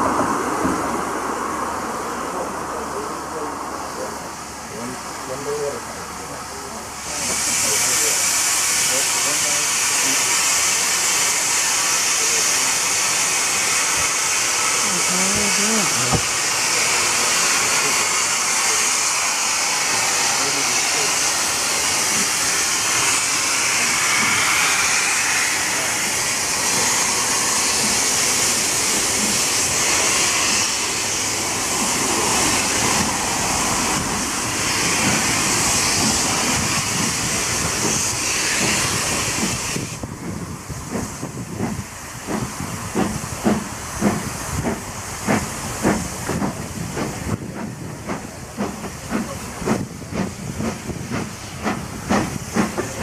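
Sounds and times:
loud steam hiss: 0:00.0 - 0:53.0
steam locomotive exhaust chuffs: 0:04.0 - 0:53.0.

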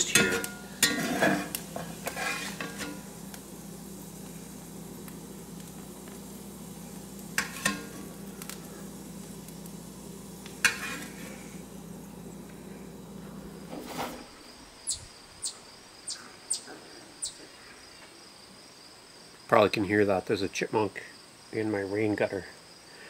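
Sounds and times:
metal spatula scraping skillet: 0:00.0 - 0:03.1, 0:07.4 - 0:08.0, 0:10.6 - 0:11.6, 0:13.7 - 0:14.3
butter sizzling in pan: 0:00.0 - 0:14.6
steady low hum: 0:00.0 - 0:17.8.

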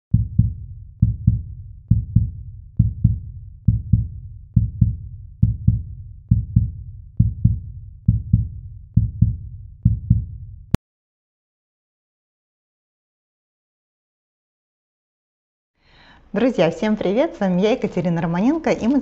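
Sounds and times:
heartbeat thumps: 0:00.1 - 0:10.8.

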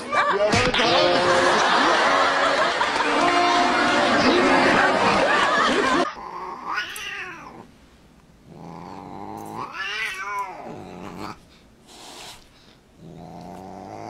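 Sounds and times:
cat yowling: 0:06.4 - 0:07.7, 0:09.4 - 0:11.3.

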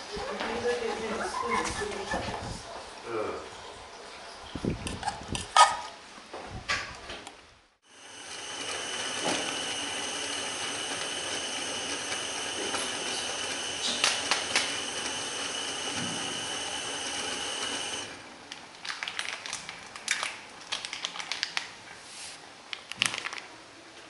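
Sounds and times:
camping stove burner hissing: 0:07.8 - 0:18.2.

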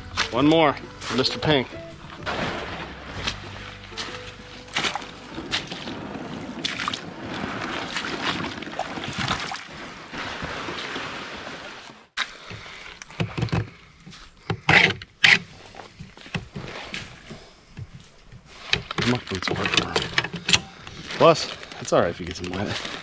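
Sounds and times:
footsteps splashing through slush: 0:02.2 - 0:12.8, 0:20.9 - 0:23.0
plastic handling knocks and clicks: 0:12.5 - 0:13.8, 0:16.0 - 0:16.7, 0:17.8 - 0:20.7.

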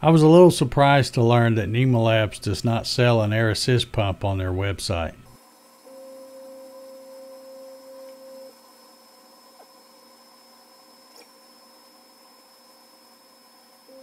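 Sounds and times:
faint high whine: 0:00.0 - 0:14.0
laser cutter machine hum: 0:05.4 - 0:14.0.

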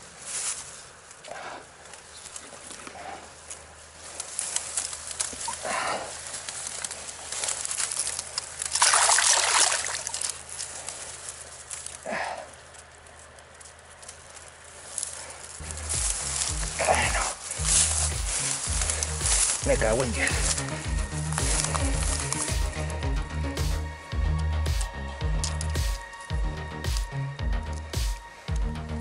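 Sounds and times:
fish thrashing and splashing: 0:07.5 - 0:10.7.

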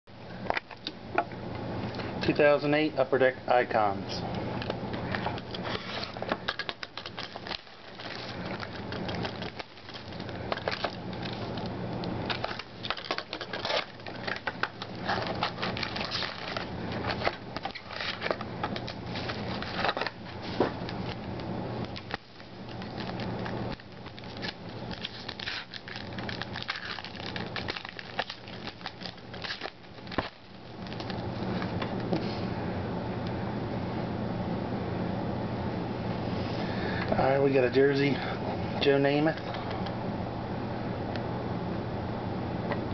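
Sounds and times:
wrapping crinkling and tearing: 0:05.1 - 0:32.0.

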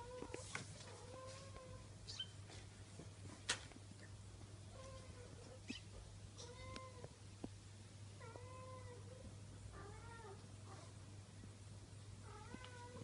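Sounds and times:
faint low hum: 0:00.0 - 0:13.0
kittens mewing: 0:04.8 - 0:07.1.

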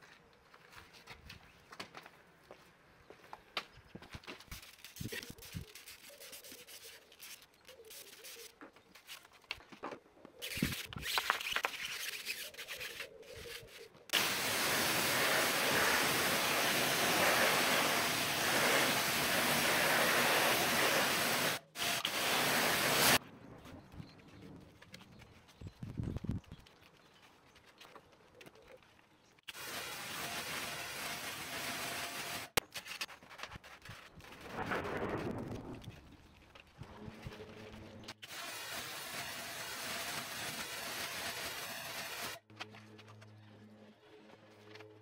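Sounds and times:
brush scrubbing foam: 0:04.6 - 0:08.5, 0:14.2 - 0:23.2
pressure washer jet hissing: 0:14.2 - 0:23.2
short spray sounds: 0:14.2 - 0:23.2.

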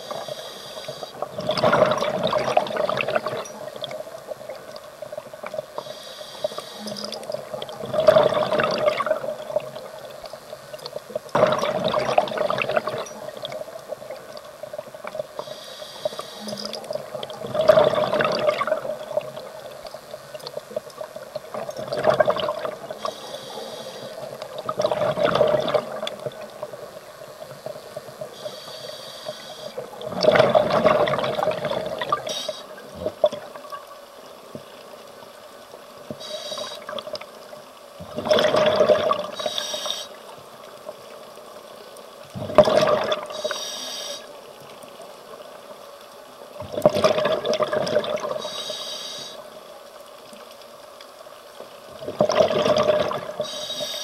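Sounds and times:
high hissing inhalations: 0:00.0 - 0:01.1, 0:05.8 - 0:07.1, 0:15.4 - 0:16.7, 0:23.0 - 0:24.2, 0:28.4 - 0:29.8, 0:39.4 - 0:40.2, 0:43.4 - 0:44.3, 0:48.4 - 0:49.4, 0:53.4 - 0:54.0
faint steady hum: 0:00.0 - 0:54.0
exhaled bubbles rushing: 0:01.2 - 0:04.0, 0:07.2 - 0:10.0, 0:11.3 - 0:14.3, 0:16.9 - 0:19.7, 0:21.5 - 0:23.1, 0:24.4 - 0:26.8, 0:29.9 - 0:32.3, 0:38.0 - 0:39.4, 0:42.3 - 0:43.3, 0:46.6 - 0:48.4, 0:51.9 - 0:53.4.

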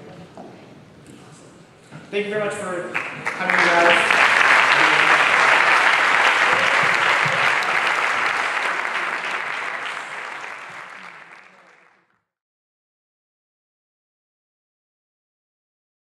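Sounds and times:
large audience applauding: 0:02.9 - 0:12.1.

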